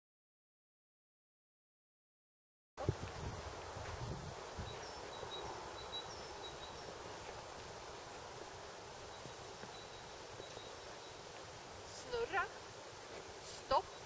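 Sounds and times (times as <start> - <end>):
outdoor background hiss: 2.8 - 14.0
high bird chirps: 4.6 - 7.0.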